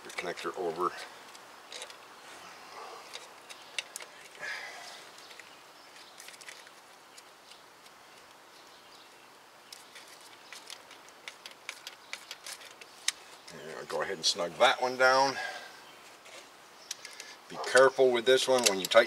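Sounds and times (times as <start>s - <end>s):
small metallic clicks and ticks: 0.0s - 2.1s, 3.0s - 4.4s, 5.1s - 9.0s, 9.6s - 13.6s, 16.8s - 19.0s.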